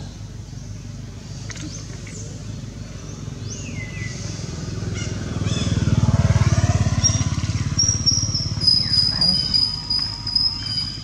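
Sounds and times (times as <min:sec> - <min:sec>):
vehicle engine passing by: 0:03.0 - 0:11.0.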